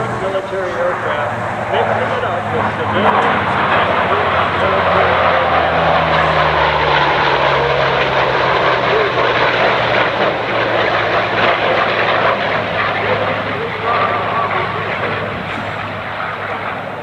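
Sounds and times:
jet engine roar: 0.0s - 17.0s
propeller plane drone: 0.0s - 17.0s.

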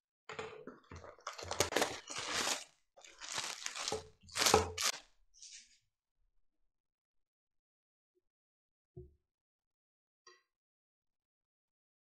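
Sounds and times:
plastic bag crinkling: 0.9s - 5.0s.

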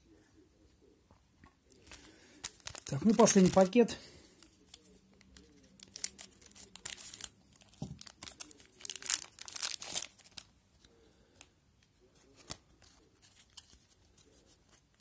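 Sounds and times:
foil wrapper crinkling and tearing: 1.7s - 3.9s, 4.7s - 10.5s.

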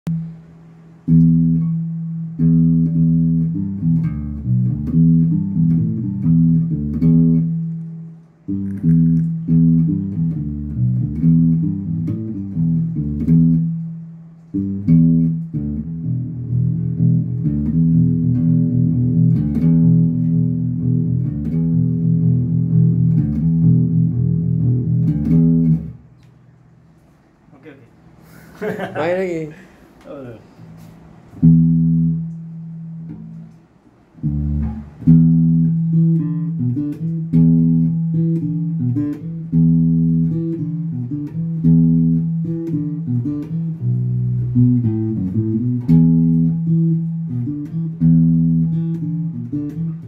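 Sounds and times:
electric bass plucked notes: 0.1s - 26.5s, 31.4s - 50.0s.

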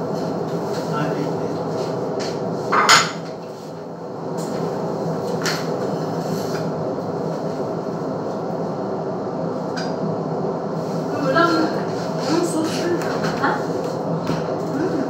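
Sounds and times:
steady mechanical hum: 0.0s - 15.0s
dishes clattering: 2.7s - 3.2s.

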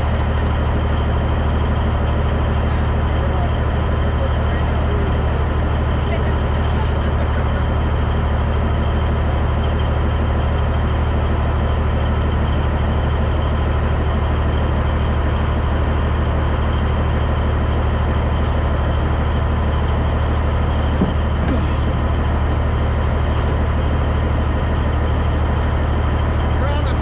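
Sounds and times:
diesel truck engine idling: 0.0s - 27.0s.

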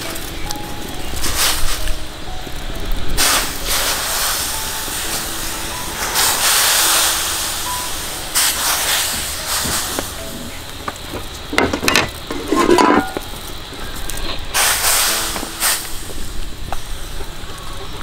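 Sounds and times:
chicken sizzling in a pan: 0.0s - 18.0s
clattering and knocking: 10.8s - 13.2s.

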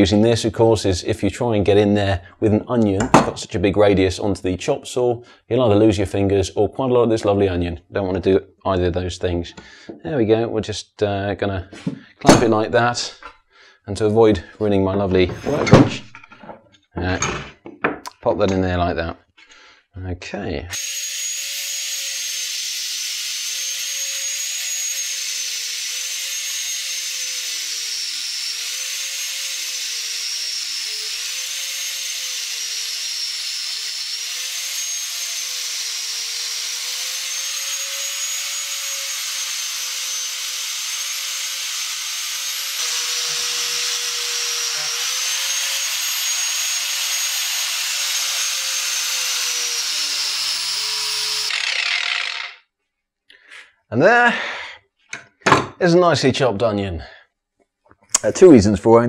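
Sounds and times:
angle grinder cutting: 20.7s - 52.7s.

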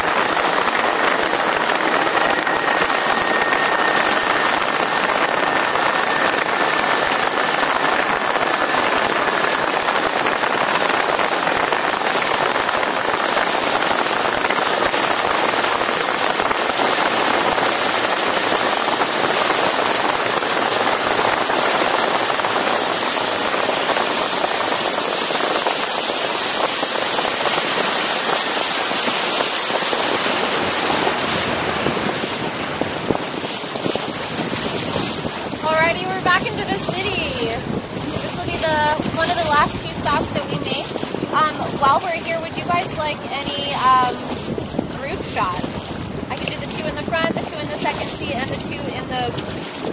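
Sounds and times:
faint steady whine: 0.0s - 11.7s
rush of wind and spray: 0.0s - 49.9s.

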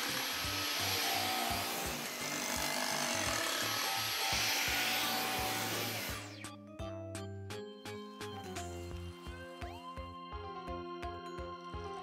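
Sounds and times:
vacuum cleaner on carpet: 0.0s - 2.2s, 3.4s - 6.2s
background music with steady beat: 0.0s - 12.0s.

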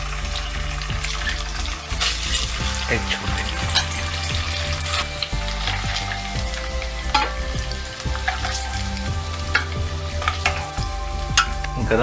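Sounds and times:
eggs sizzling in hot oil: 0.0s - 12.0s
steel spoon in pan: 8.2s - 11.9s.

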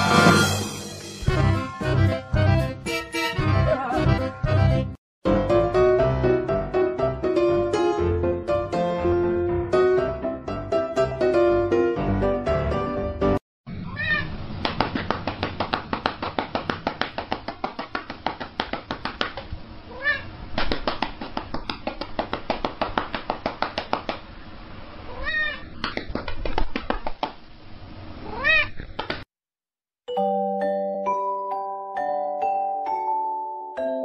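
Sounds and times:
cat meowing: 13.7s - 14.4s, 19.9s - 20.3s, 25.1s - 25.7s, 28.2s - 28.8s
rhythmic patting on cat's back: 14.6s - 19.6s, 20.5s - 24.4s, 25.8s - 27.4s.

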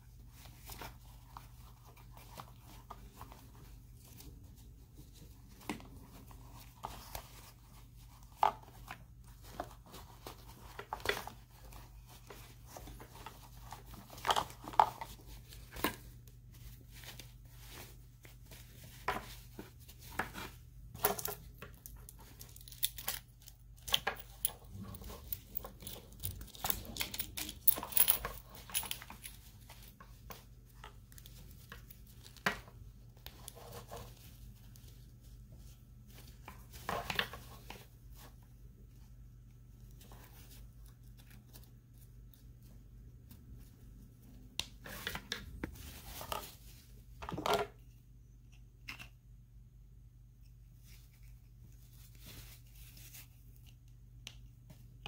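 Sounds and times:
fabric rustling: 43.5s - 47.2s.

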